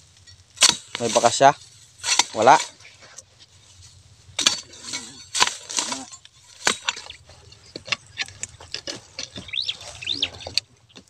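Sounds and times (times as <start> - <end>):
dry grass and twigs crackling: 0.0 - 11.0
bird chirps: 6.6 - 11.0.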